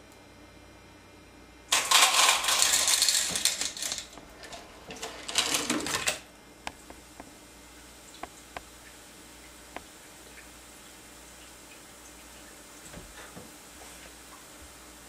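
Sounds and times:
marbles clattering down a track: 1.7 - 6.2.

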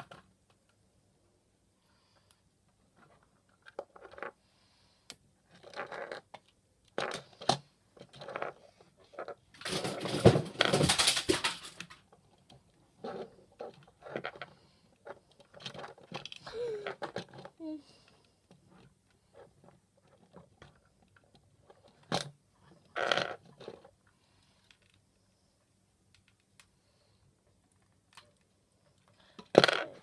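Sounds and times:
plastic toy bricks clicking and rattling: 5.4 - 17.6, 19.6 - 23.9, 29.4 - 30.0
rustling and clatter: 5.4 - 17.6, 18.4 - 24.1.

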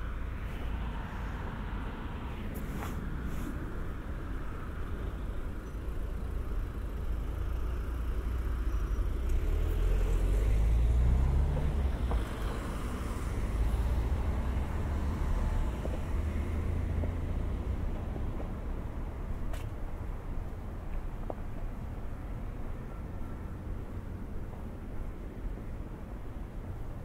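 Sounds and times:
car passing: 8.2 - 19.2.

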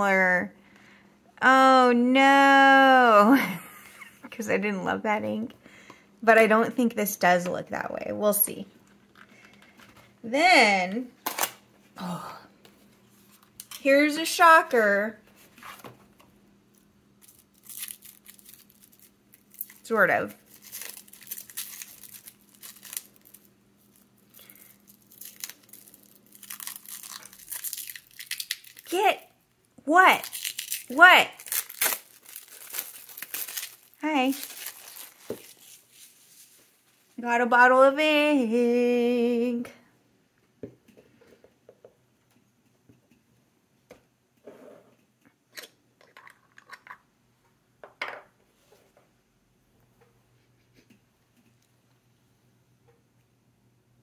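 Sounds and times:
plastic wrap crinkling: 17.2 - 29.4, 30.0 - 36.8.

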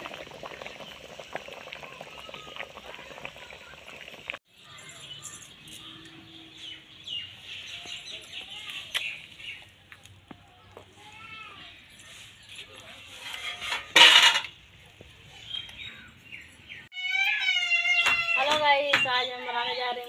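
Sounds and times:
water boiling in a wok: 0.0 - 4.7
metal cookware clinking: 13.2 - 14.6.

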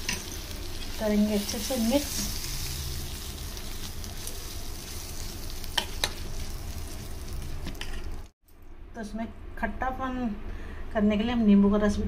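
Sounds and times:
onions hissing in hot oil: 0.0 - 8.3.

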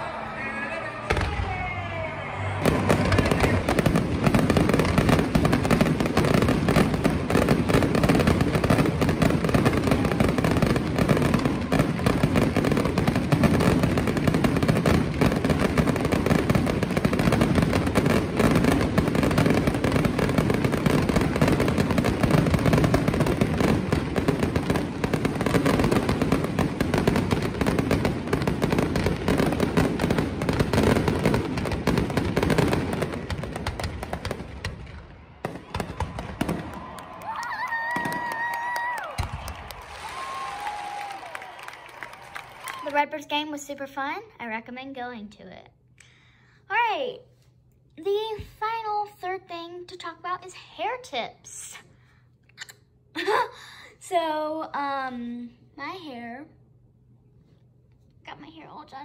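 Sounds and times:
fireworks bangs and crackles: 0.0 - 44.6.

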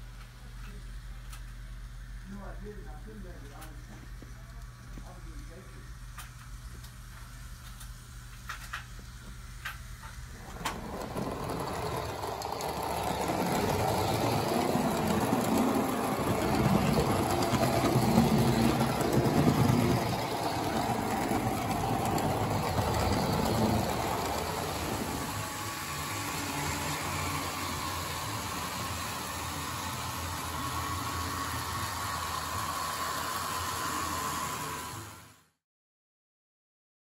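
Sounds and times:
small model train clicks: 7.6 - 8.9, 9.6 - 28.2
model train motor whir: 9.6 - 35.6.

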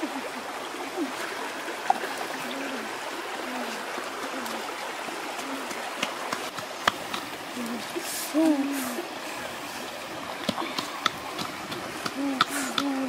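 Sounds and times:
stream running over rocks: 0.0 - 13.0.

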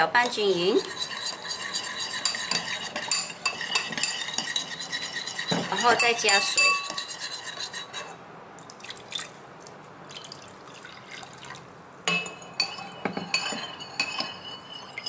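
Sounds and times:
spoon clinking against a bowl: 0.2 - 8.1, 12.1 - 15.0
spoon stirring: 0.2 - 8.2, 12.1 - 15.0
water pouring into a bowl: 8.6 - 9.4, 10.1 - 11.6.

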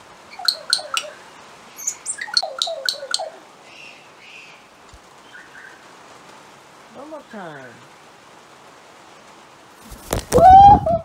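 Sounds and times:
parrot chirping calls: 0.2 - 4.7, 10.1 - 11.0.

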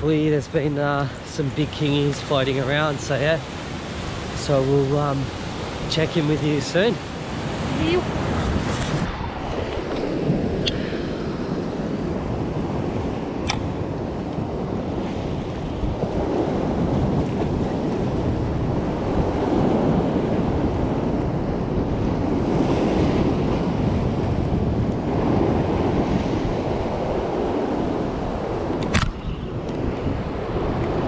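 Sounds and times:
wind buffeting microphone: 0.0 - 31.0
ocean swell washing over rocks: 0.1 - 31.0
sharp click: 13.4 - 13.7, 28.7 - 29.8.

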